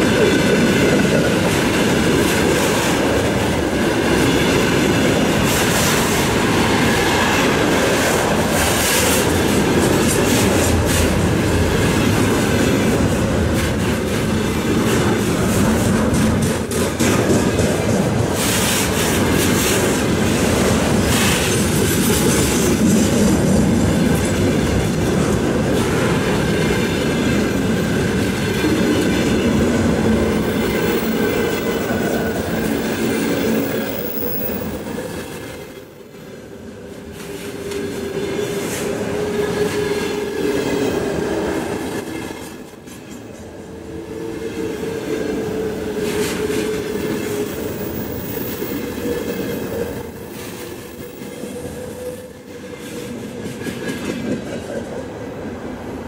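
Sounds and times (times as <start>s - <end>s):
train wheels rumbling on rail: 0.0s - 56.0s
clatter over rail joints: 7.0s - 35.9s.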